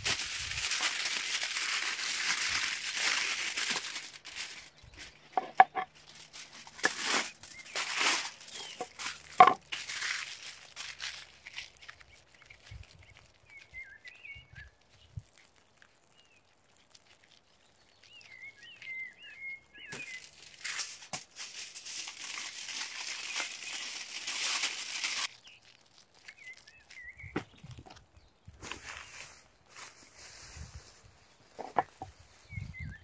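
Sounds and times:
aluminium foil crinkling: 0.0s - 33.0s
small bird chirping: 7.3s - 9.4s, 11.5s - 20.9s, 25.2s - 33.0s.

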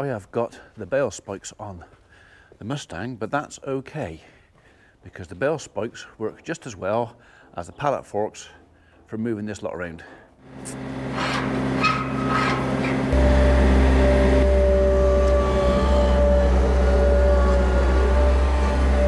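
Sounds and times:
loader engine running: 10.4s - 19.0s
high whine: 10.5s - 19.0s.

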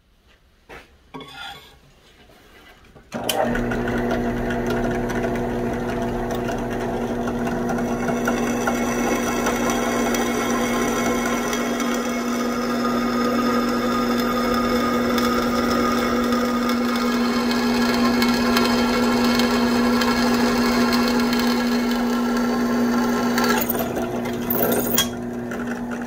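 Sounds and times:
drill press humming: 3.2s - 26.0s
drill bit grinding into steel: 23.4s - 25.3s.

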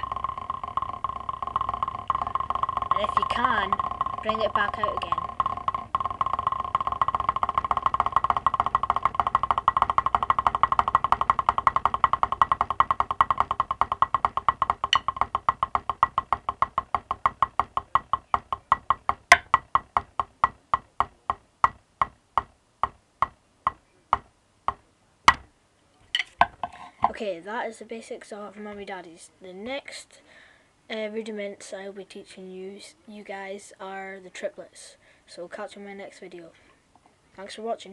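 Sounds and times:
drumsticks on practice pad: 0.0s - 25.5s.

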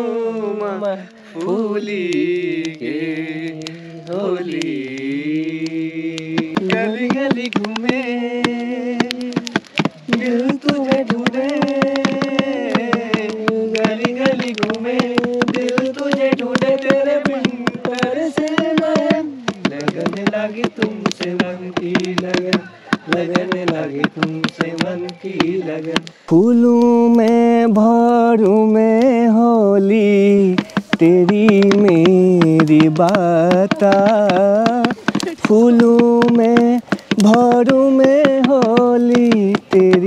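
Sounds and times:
wavering folk melody: 0.0s - 40.0s
quick percussive beat: 1.4s - 40.0s.

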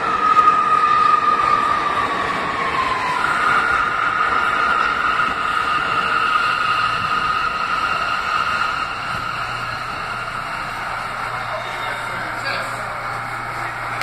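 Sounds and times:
subway train rumbling: 0.0s - 14.0s
high whine: 3.8s - 14.0s.

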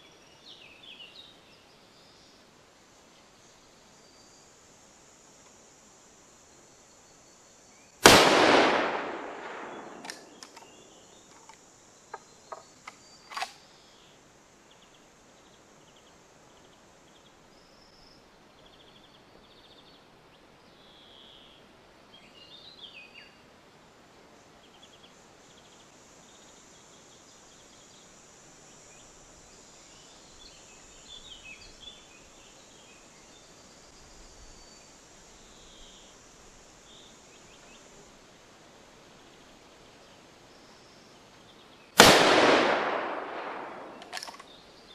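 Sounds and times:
rifle shot with echo: 8.0s - 10.6s, 42.0s - 44.4s
rifle lever clicking and clacking: 9.9s - 10.7s, 43.8s - 44.5s.

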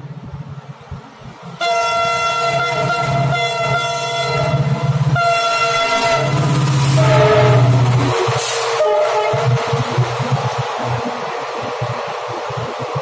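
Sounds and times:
locomotive running rumble: 0.1s - 13.0s
locomotive horn blast: 1.6s - 10.0s.

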